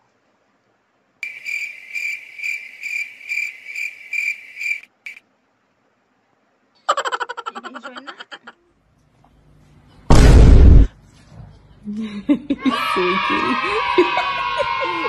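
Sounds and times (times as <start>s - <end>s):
cricket chirping: 1.2s - 5.2s.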